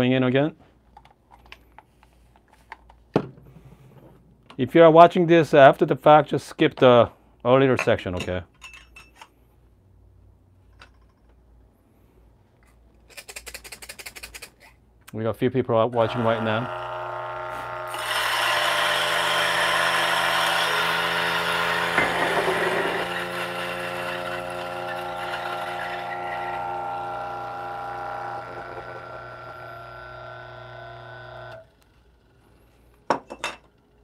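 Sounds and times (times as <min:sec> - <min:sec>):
coffee grinder grinding beans: 0:16.0 - 0:32.8.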